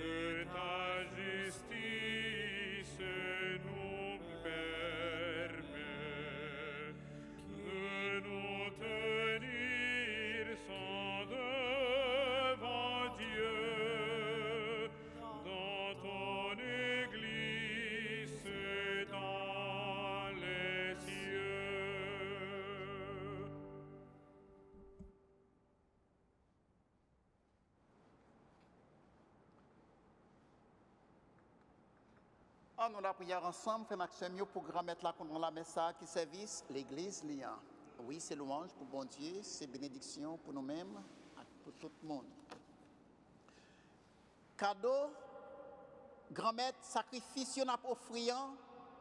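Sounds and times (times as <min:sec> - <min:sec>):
solo voice singing a hymn: 0:00.0 - 0:24.4, 0:44.6 - 0:49.0.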